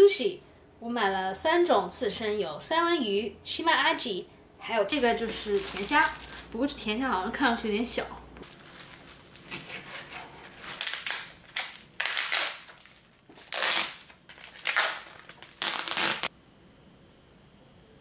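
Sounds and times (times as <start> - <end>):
plastic cling wrap crinkling: 4.9 - 16.3.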